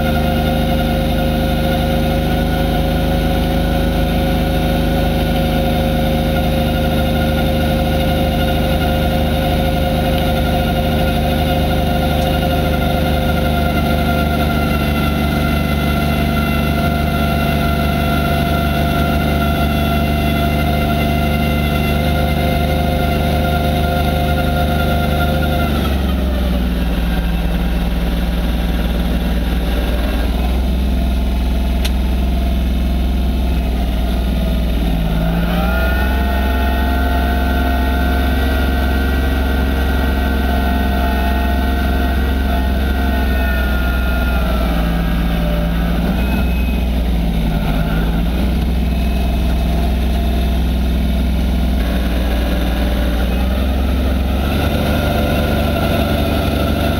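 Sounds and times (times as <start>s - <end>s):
tractor diesel engine running: 0.0s - 56.9s.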